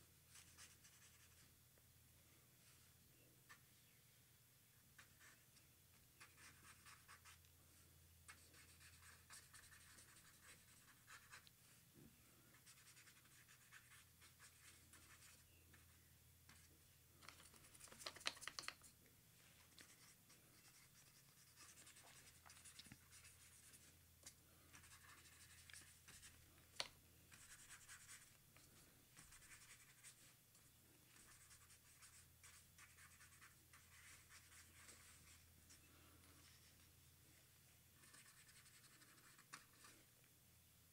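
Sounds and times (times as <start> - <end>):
marker pen scratching on paper: 0.3 - 1.4, 6.2 - 7.4, 8.3 - 11.4, 12.5 - 18.8, 19.6 - 23.9, 24.7 - 26.4, 27.3 - 28.4, 29.2 - 30.4, 31.1 - 36.7, 38.0 - 40.0.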